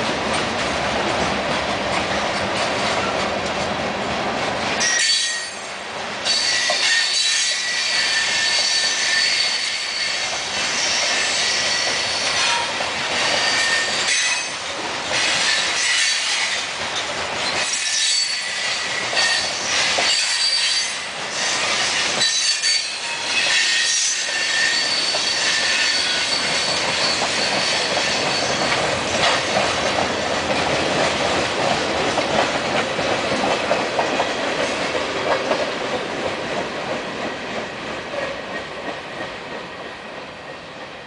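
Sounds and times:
train rumbling with clacking wheels: 0.0 - 41.0
freight train wheels squealing: 4.8 - 30.7.

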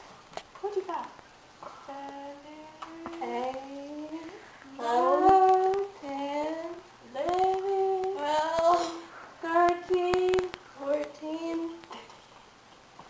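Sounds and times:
girls counting in sing-song: 3.2 - 5.8.

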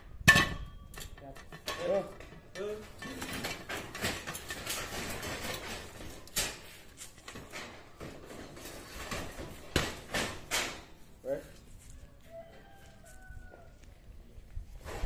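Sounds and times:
metal pipes knocking and clanking: 0.2 - 11.0.

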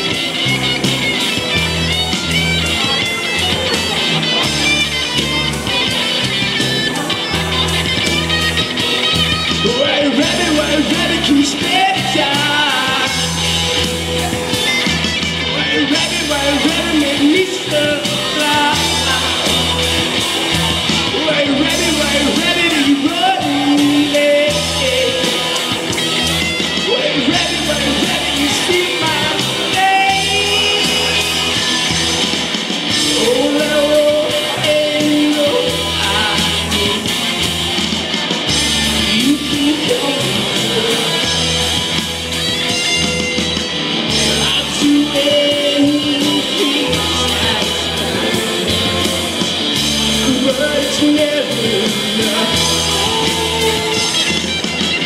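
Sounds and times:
sung vocals: 0.0 - 43.1, 43.9 - 55.0
rock band playing: 0.0 - 55.0.

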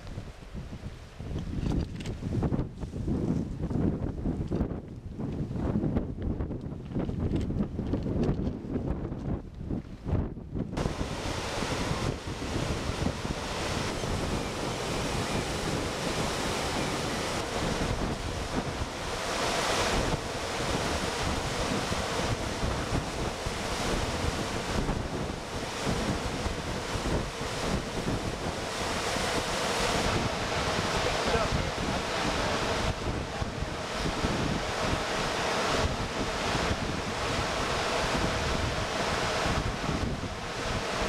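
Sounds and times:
wind buffeting microphone: 0.0 - 41.0
river rushing over rocks: 10.8 - 41.0.

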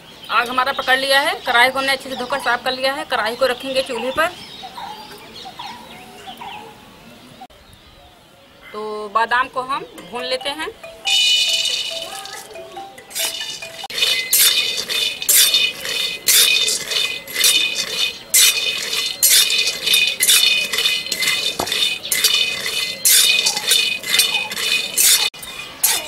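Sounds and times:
spatula scraping a metal pan: 13.1 - 26.0.

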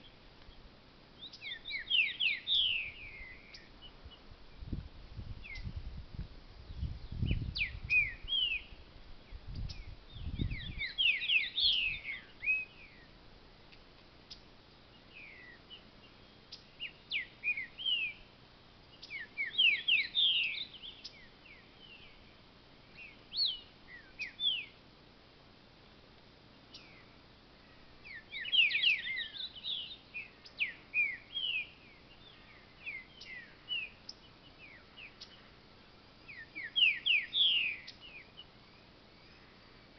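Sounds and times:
bird singing whistled notes: 1.2 - 4.2, 5.4 - 5.8, 6.7 - 13.2, 14.3 - 18.3, 18.9 - 24.8, 26.7 - 27.2, 28.0 - 35.5, 36.2 - 39.6.

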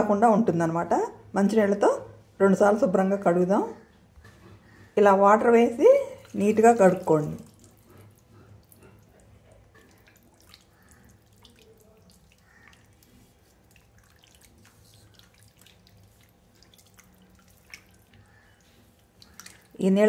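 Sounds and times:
water splashing and dripping: 6.1 - 20.0.

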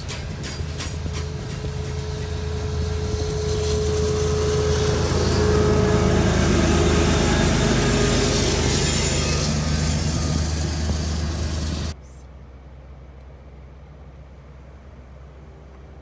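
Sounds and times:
freight cars rolling past: 0.0 - 12.0
diesel locomotive engine humming: 0.0 - 16.0.

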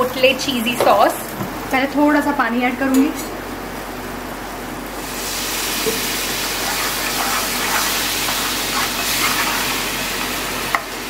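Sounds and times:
water hissing in a hot pan: 5.0 - 11.0.

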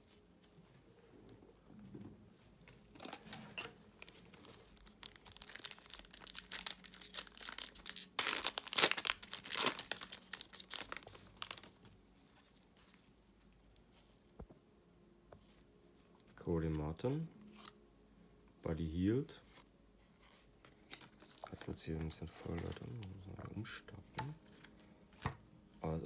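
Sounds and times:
foil pack crinkling and tearing: 4.0 - 12.0.

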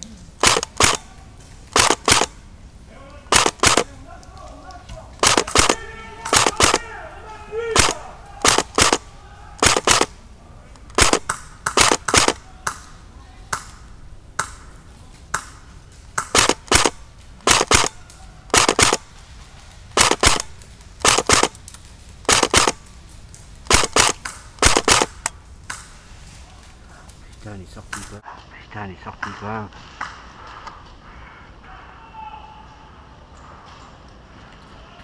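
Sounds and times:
airsoft gun shots: 0.4 - 1.1, 1.7 - 2.4, 3.3 - 3.9, 5.2 - 6.9, 7.8 - 10.2, 10.9 - 12.4, 16.2 - 19.0, 20.0 - 21.6, 22.2 - 22.8, 23.7 - 25.3.

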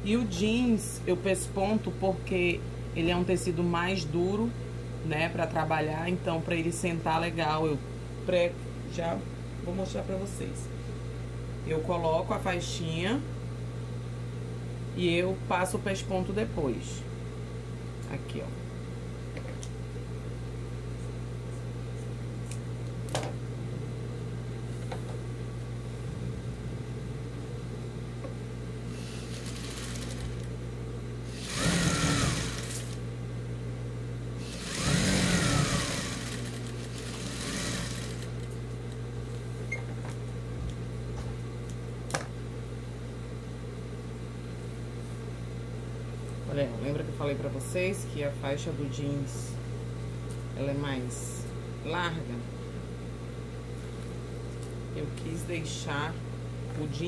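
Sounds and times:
steady low hum: 0.0 - 57.0
sewing machine stitching: 29.0 - 30.5, 31.3 - 33.0, 34.4 - 38.4.

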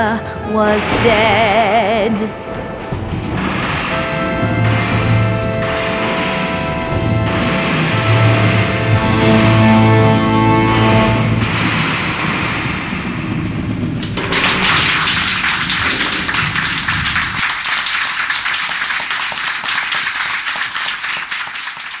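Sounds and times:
audience applause: 14.0 - 22.0.

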